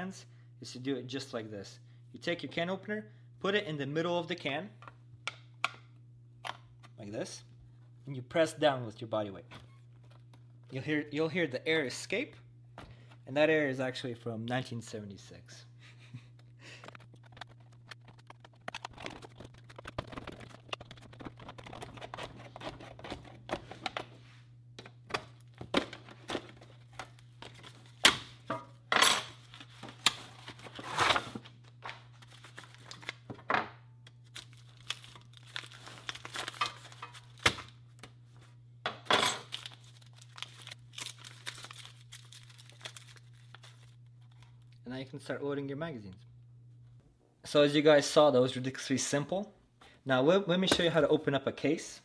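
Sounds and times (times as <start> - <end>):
paper packets rustling and tearing: 16.8 - 24.0, 29.3 - 33.3, 34.2 - 37.8, 39.4 - 44.4.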